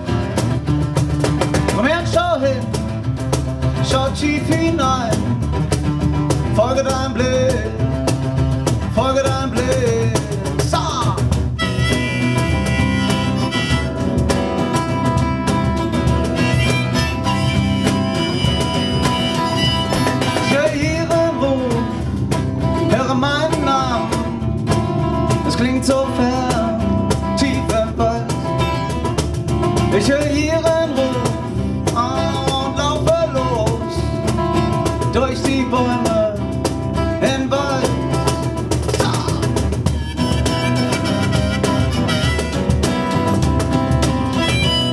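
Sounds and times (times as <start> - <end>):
acoustic guitar: 0.0 - 44.9
percussion: 0.0 - 44.9
wavering lead melody: 11.6 - 14.5, 16.2 - 20.5, 39.9 - 43.0.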